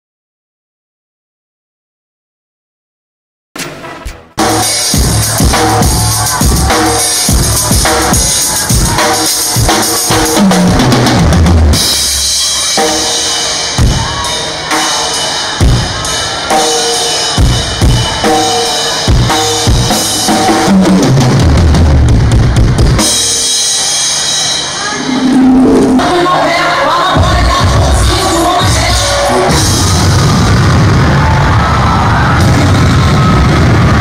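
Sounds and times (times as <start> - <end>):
cymbals: 3.6 - 21.1
sustained pitched notes: 24.8 - 26.5.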